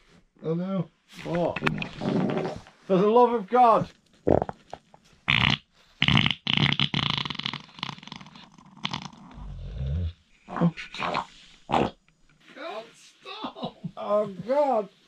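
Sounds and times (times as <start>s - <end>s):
low rumbling fart: 4.2s - 4.6s, 5.3s - 10.1s
man wheezing laughter: 13.2s - 14.0s.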